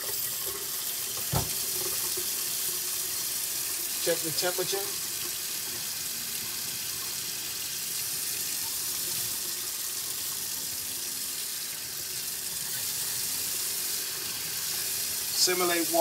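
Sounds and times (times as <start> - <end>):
faucet water splashing into steel sink: 0.0 - 6.0.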